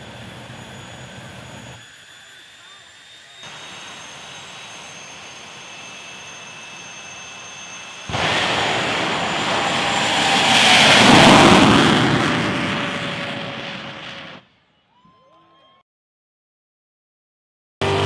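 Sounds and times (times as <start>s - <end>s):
turbine engine whining: 0.0s - 14.5s
afterburner blast: 7.8s - 14.5s.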